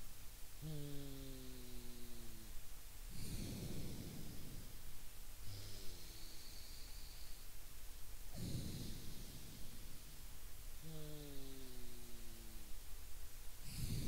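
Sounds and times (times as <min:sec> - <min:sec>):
man breathing hard through nose: 0:03.1 - 0:07.6, 0:13.6 - 0:14.0.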